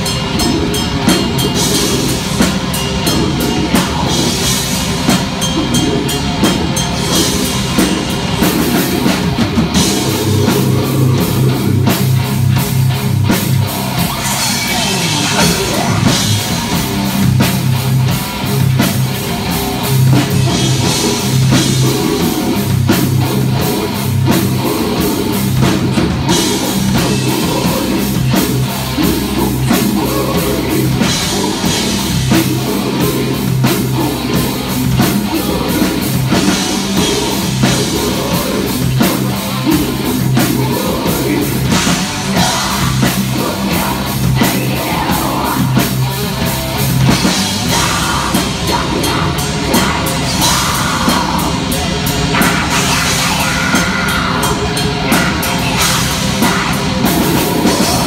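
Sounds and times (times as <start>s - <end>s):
bass guitar: 0.0s - 58.0s
distorted electric guitar: 0.0s - 58.0s
fast drum kit: 0.0s - 58.0s.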